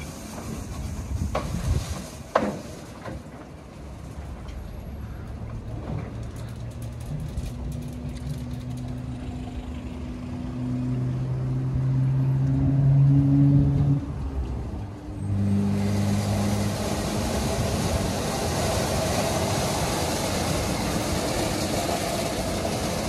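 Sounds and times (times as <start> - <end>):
car wash brushes rotating: 15.3 - 23.0.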